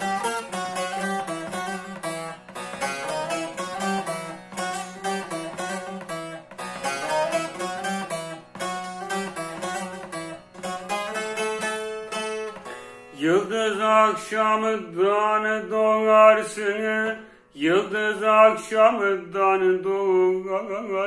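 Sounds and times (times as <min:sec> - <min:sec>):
saz playing folk tune: 0:00.0 - 0:17.4.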